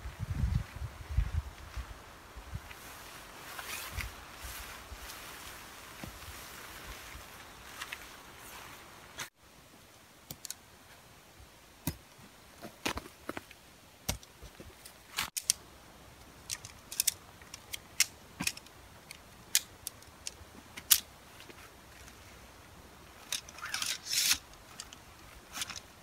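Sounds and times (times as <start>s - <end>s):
tent pole sections clicking: 10.2s - 10.6s, 11.8s - 22.3s, 23.2s - 26.0s.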